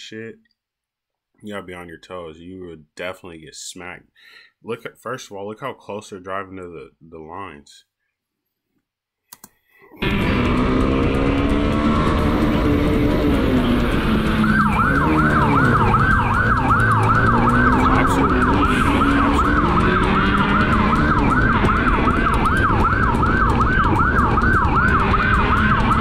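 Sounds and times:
motorcycle engine running: 10.0s - 26.0s
police siren yelping: 10.0s - 26.0s
wind and road rush: 10.0s - 26.0s.

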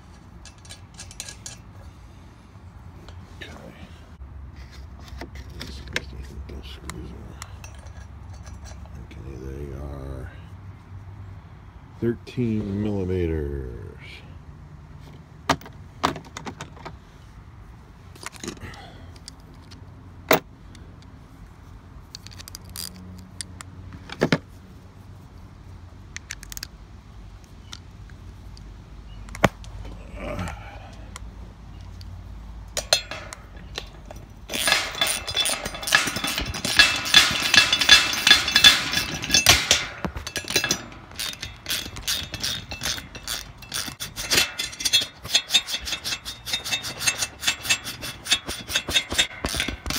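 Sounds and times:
metal socket clinking: 0.0s - 1.7s, 6.9s - 9.1s, 22.1s - 23.7s, 26.1s - 26.7s, 32.7s - 49.9s
ratchet wrench clicking rapidly: 34.5s - 49.9s.

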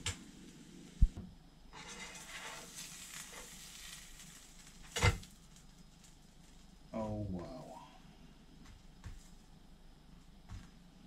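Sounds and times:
sandwich sizzling in a frying pan: 1.7s - 7.0s.

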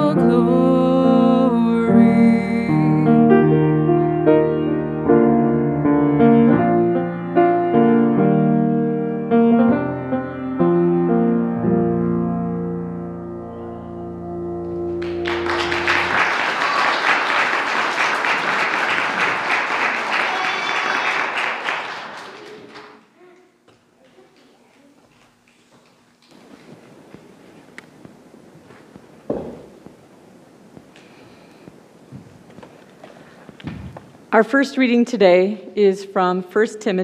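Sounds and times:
grand piano chords: 0.0s - 16.6s
congregation applauding: 14.8s - 23.1s.

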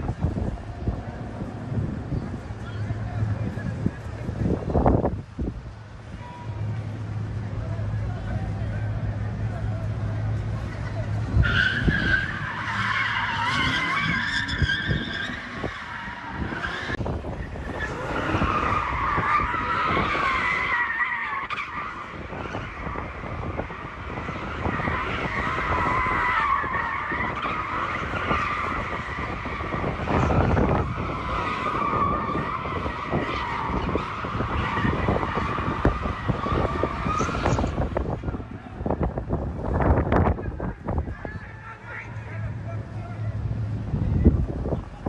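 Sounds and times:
car engines running: 0.0s - 45.0s
car tires squealing: 7.9s - 43.4s.

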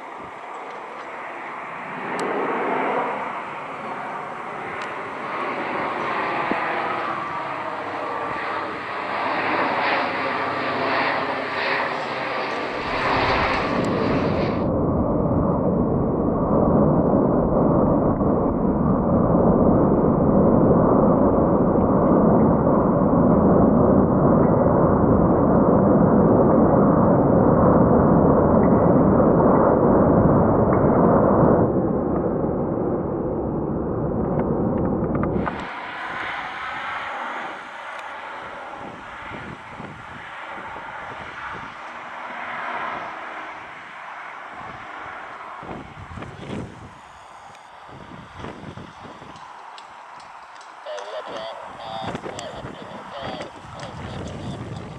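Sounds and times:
turboprop aircraft droning overhead: 0.0s - 54.9s.

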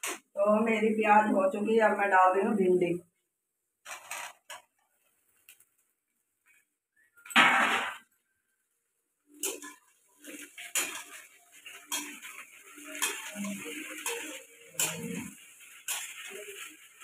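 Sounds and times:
spatula scraping a metal pan: 9.4s - 17.0s.

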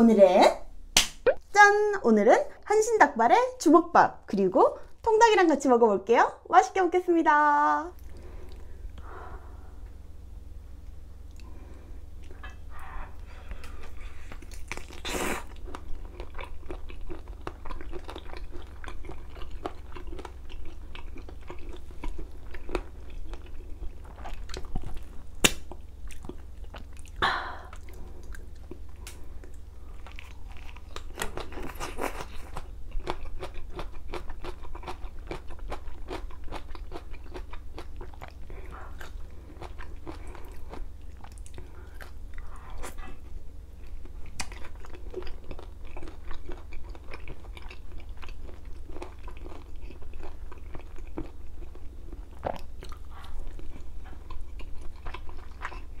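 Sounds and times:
chewing and biting: 13.6s - 56.0s.

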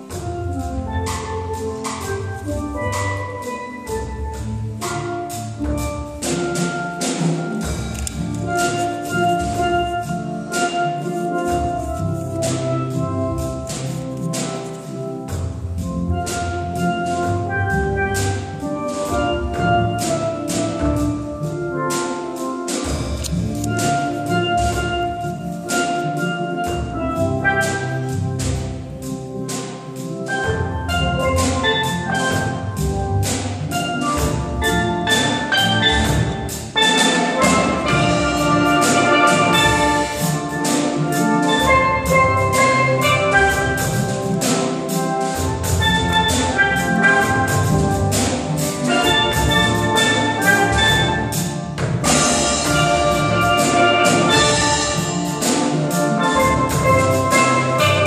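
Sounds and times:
steel band playing: 0.0s - 58.0s
sharp percussion hits: 30.3s - 58.0s.

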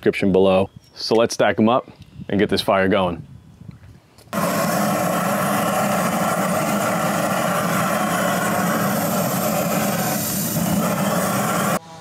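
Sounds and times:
propane torch hissing roar: 4.4s - 11.8s.

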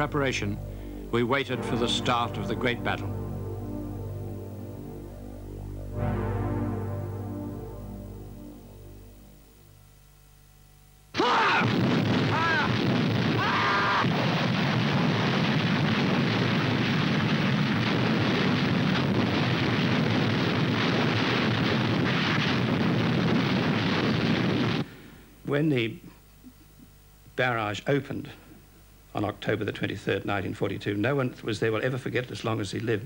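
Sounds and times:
artillery gun blasts and explosions: 11.5s - 24.9s.

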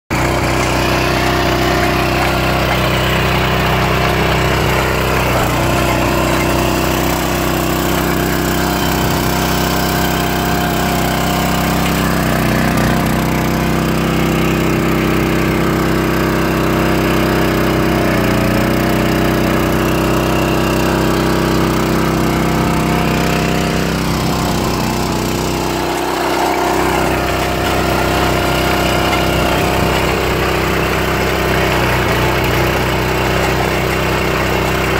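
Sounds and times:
trencher engine running: 0.1s - 34.9s.

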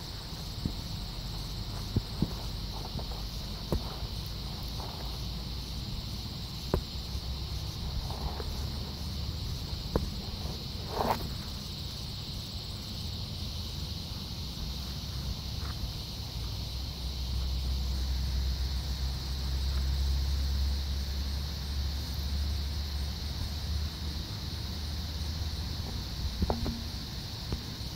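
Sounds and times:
insects chorus: 0.0s - 27.9s.

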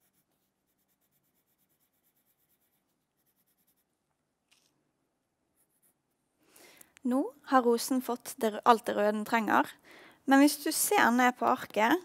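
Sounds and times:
pencil scratching on paper: 0.0s - 4.0s, 5.6s - 6.2s.

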